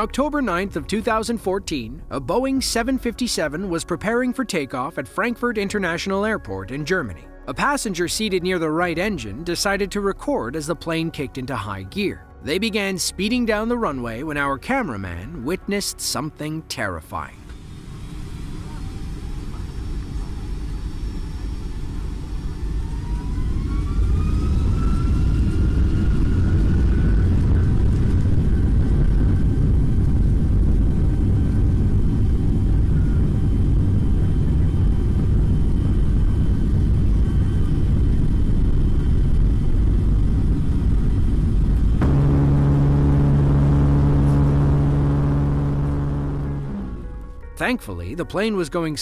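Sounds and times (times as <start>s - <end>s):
jet engine whine and rumble: 17.4s - 47.5s
loud low droning buzz: 24.6s - 47.8s.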